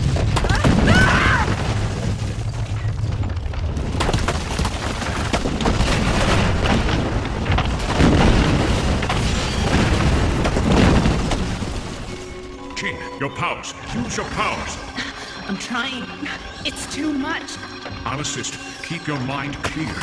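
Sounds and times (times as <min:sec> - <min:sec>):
earthquake low rumble: 0:00.0 - 0:12.7
rock and masonry crashing: 0:00.0 - 0:12.7.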